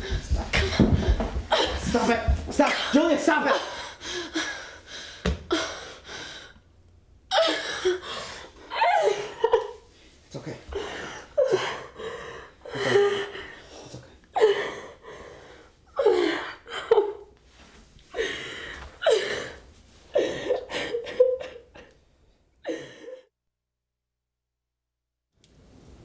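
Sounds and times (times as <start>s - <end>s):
woman sobbing and wailing: 0.0s - 2.1s, 7.3s - 9.9s, 10.8s - 13.6s, 14.3s - 15.0s, 15.9s - 17.4s, 19.0s - 22.0s.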